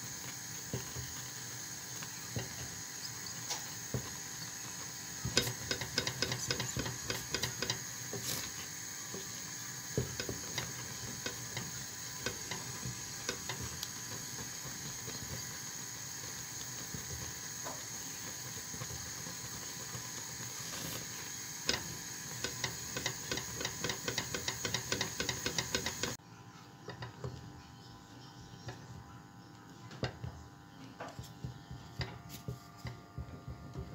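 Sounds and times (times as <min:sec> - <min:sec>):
steady hiss: 0:00.0 - 0:26.2.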